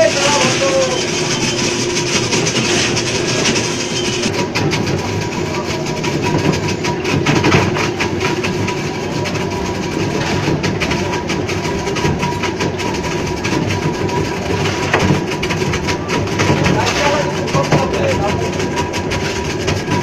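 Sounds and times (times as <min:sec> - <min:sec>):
thin steady whine: 0:00.0 - 0:06.2
ice crusher grinding ice: 0:00.0 - 0:20.0.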